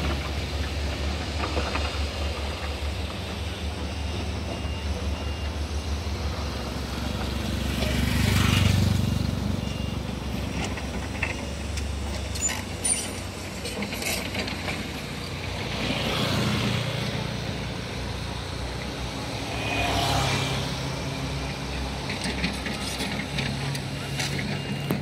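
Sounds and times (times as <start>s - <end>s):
construction site motor noise: 0.0s - 25.0s
vehicle engines running: 0.0s - 25.0s.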